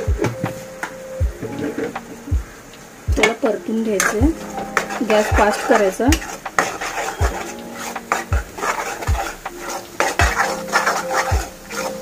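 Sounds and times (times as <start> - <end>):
metal spoon scraping a pan: 3.2 - 12.0.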